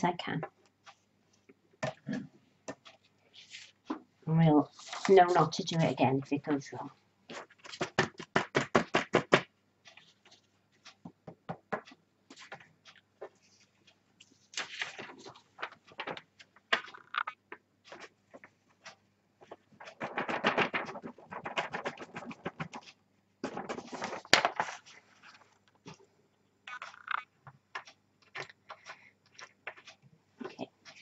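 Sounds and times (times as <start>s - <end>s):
paper rustling and crinkling: 4.6s - 5.9s, 7.3s - 8.0s, 13.2s - 16.9s, 19.4s - 25.8s.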